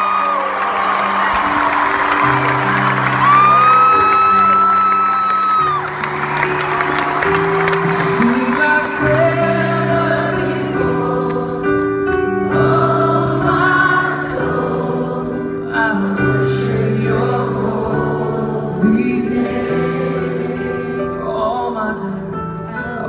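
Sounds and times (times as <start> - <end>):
worship band playing a slow song: 0.1 - 23.0
crowd singing along: 6.1 - 21.5.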